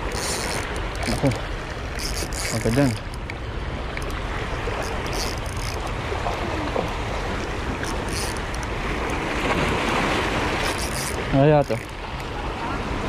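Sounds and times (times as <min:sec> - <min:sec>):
waves washing against rocks: 0:00.0 - 0:13.0
faint ticks: 0:00.1 - 0:04.2, 0:04.8 - 0:06.0, 0:07.8 - 0:09.2, 0:10.6 - 0:12.3.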